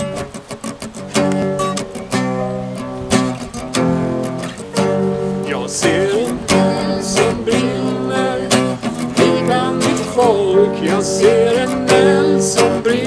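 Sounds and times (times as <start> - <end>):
acoustic guitar strumming: 0.0 - 13.0
keyboard chords: 1.2 - 12.9
person singing: 4.8 - 13.0.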